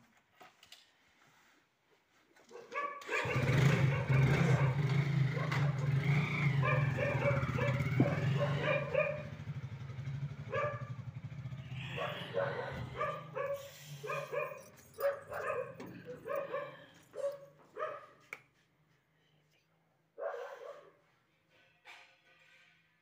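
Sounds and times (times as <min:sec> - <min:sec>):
dog barking: 0:02.4 - 0:18.3, 0:20.2 - 0:21.1
motorcycle engine running: 0:03.2 - 0:17.4.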